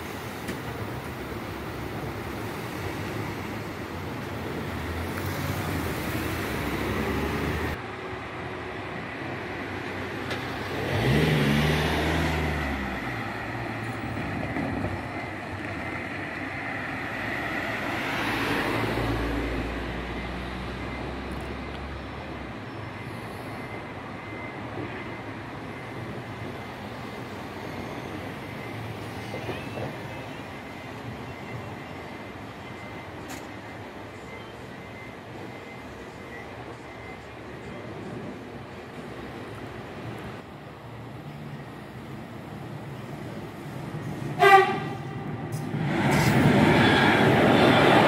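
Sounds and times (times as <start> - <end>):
cars driving past: 4.5 - 7.8, 9.6 - 22.2.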